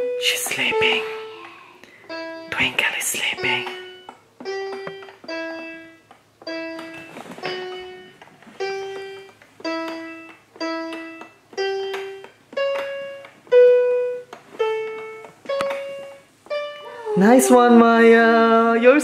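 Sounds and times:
electronic toy keyboard melody: 0:02.1 - 0:02.6, 0:03.4 - 0:17.4.

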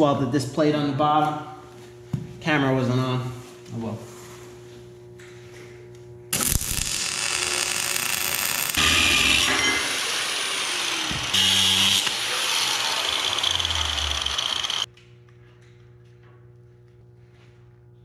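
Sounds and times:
arc welding crackling: 0:06.3 - 0:14.9
angle grinder grinding steel: 0:06.4 - 0:14.9.

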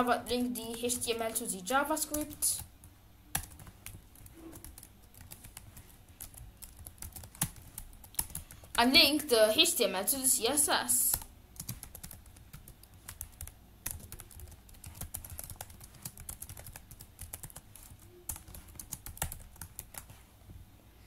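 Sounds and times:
computer keyboard typing: 0:00.6 - 0:02.7, 0:03.3 - 0:08.9, 0:11.0 - 0:20.2.

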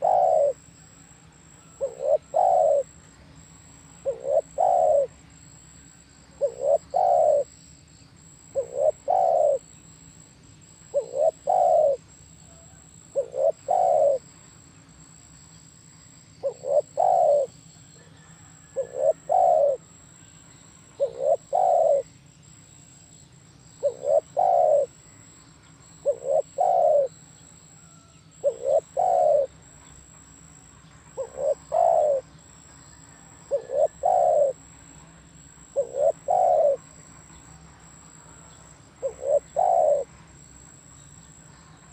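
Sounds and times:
dove cooing: 0:00.0 - 0:05.2, 0:06.3 - 0:07.5, 0:08.5 - 0:09.7, 0:10.9 - 0:14.3, 0:16.4 - 0:20.0, 0:20.9 - 0:22.1, 0:23.8 - 0:25.3, 0:25.9 - 0:29.6, 0:31.2 - 0:32.4, 0:33.0 - 0:34.7, 0:35.5 - 0:37.0, 0:38.3 - 0:40.1.

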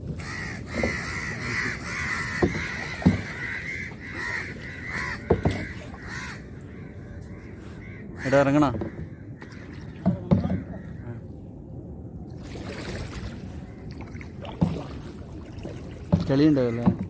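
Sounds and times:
crows cawing: 0:00.2 - 0:11.2
sharp knocks: 0:02.3 - 0:03.3, 0:05.2 - 0:05.7, 0:16.1 - 0:17.0.

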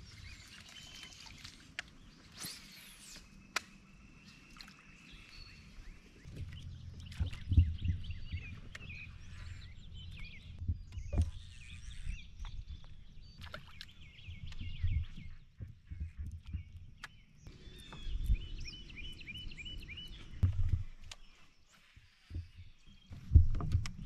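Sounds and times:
small birds chirping: 0:00.0 - 0:24.0
low rumble: 0:06.3 - 0:13.0.

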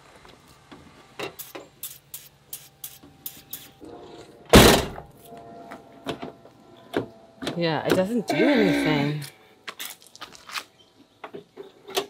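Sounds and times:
car door thud: 0:04.6 - 0:05.0.

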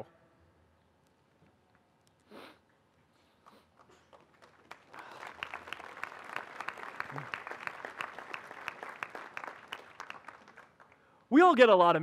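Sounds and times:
crowd applauding: 0:03.8 - 0:11.1.

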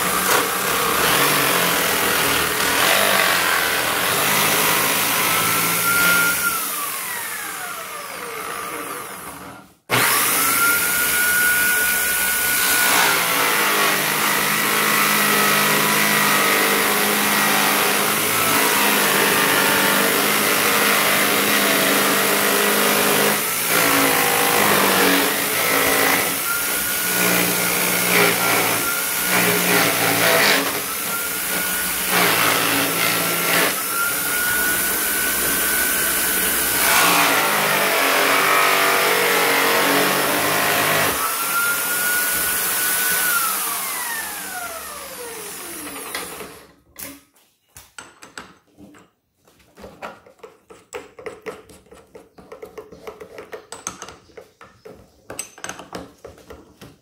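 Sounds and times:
electric drill motor whine: 0:00.0 - 0:46.7.

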